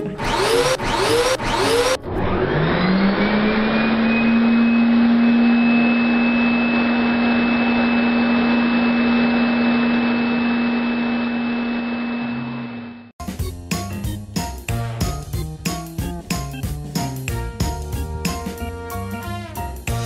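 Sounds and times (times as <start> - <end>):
vacuum cleaner motor whining: 0.0 - 13.1.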